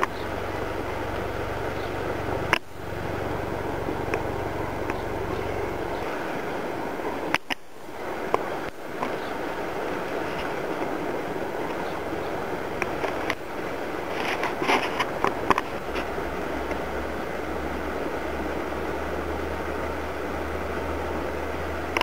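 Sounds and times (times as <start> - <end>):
low rumble: 0.0 - 22.0
faint ticks: 12.8 - 13.4.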